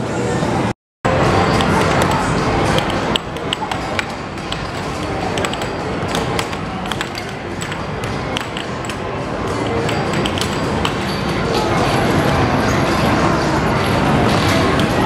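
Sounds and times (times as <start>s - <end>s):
arcade machines: 1.1s - 15.0s
music: 1.1s - 15.0s
air hockey puck clacking: 1.4s - 12.5s.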